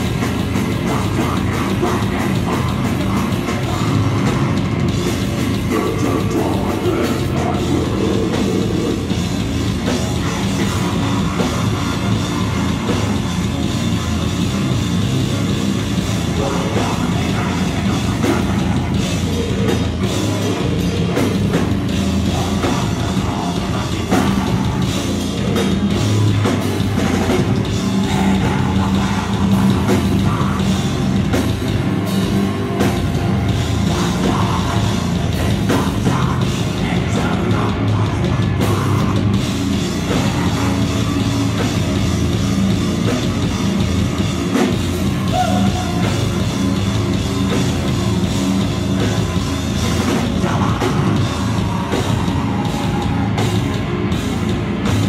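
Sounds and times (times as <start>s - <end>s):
distorted electric guitars: 0.0s - 55.0s
drum kit: 0.0s - 55.0s
vocalist singing into microphone: 0.6s - 4.6s, 5.5s - 9.2s, 16.3s - 21.4s, 22.2s - 25.6s, 33.9s - 41.0s, 50.0s - 53.4s.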